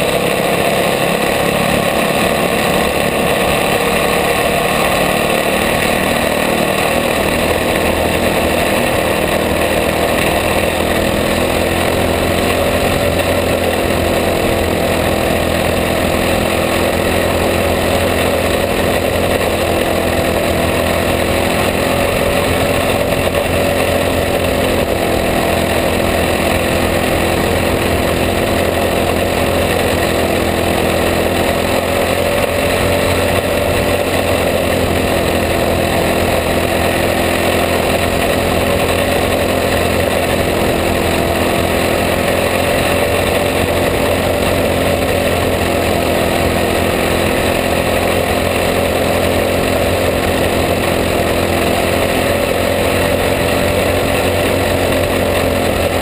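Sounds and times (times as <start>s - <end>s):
kart engine droning: 0.0s - 56.0s.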